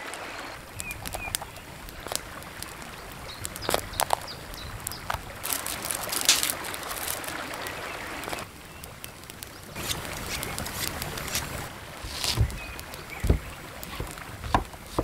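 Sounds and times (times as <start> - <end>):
forest stream running: 0.0 - 15.0
vegetables snapping and rustling: 4.9 - 7.6, 9.8 - 15.0.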